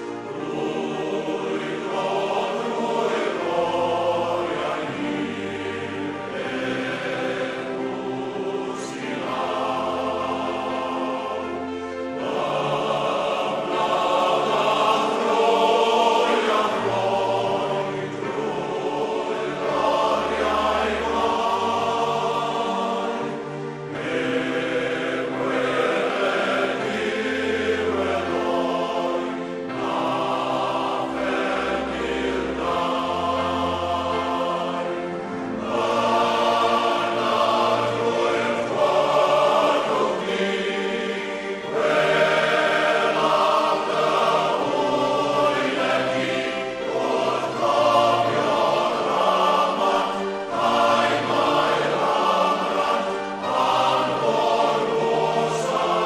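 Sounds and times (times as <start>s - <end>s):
choir singing held chords: 0.0s - 56.0s.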